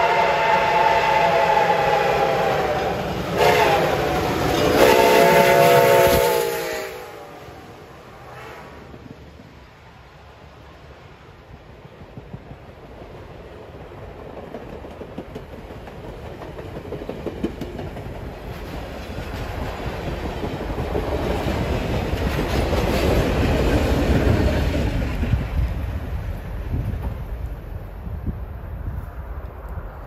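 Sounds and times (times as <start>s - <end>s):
train wheels clacking over rails: 1.3s - 6.9s, 11.8s - 27.6s.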